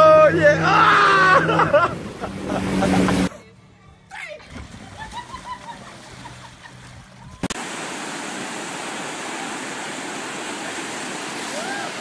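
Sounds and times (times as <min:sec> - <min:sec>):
water rushing over surf ride: 0:00.0 - 0:03.3, 0:07.4 - 0:12.0.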